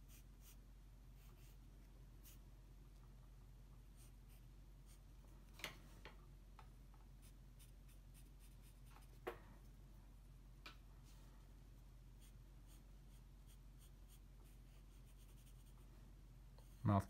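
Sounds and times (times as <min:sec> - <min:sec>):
pencil scratching on paper: 0:00.0 - 0:00.6, 0:01.2 - 0:01.6, 0:07.2 - 0:09.2, 0:12.2 - 0:15.9.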